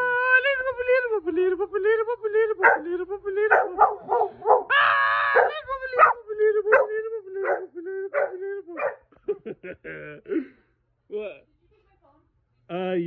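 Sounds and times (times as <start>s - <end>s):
puppy howling: 2.6s - 9.0s.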